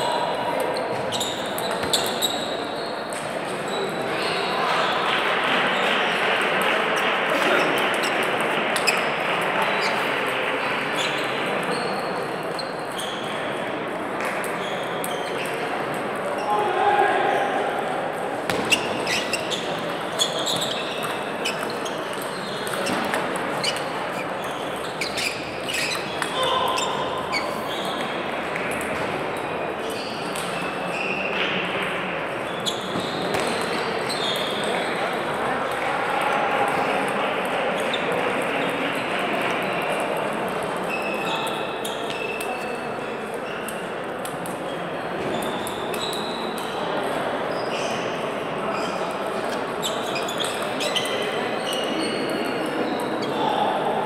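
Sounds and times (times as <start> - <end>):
murmur of voices: 0.0 - 54.0
indoor hall din: 15.7 - 20.6.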